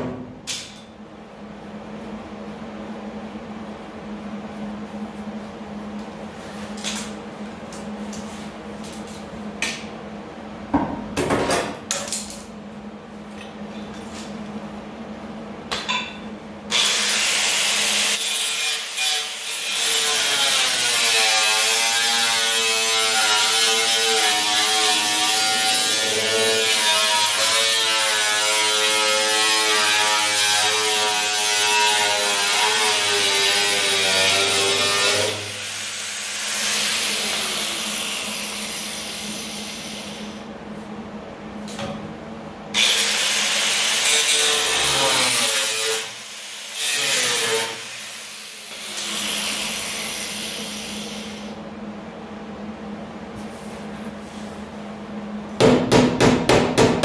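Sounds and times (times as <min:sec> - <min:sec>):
angle grinder on sheet metal: 0:16.7 - 0:40.3, 0:42.8 - 0:51.4.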